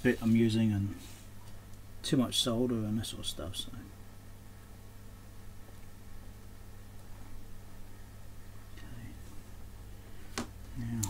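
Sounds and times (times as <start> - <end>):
faint hiss: 0.0 - 4.0
low electrical hum: 0.0 - 11.0.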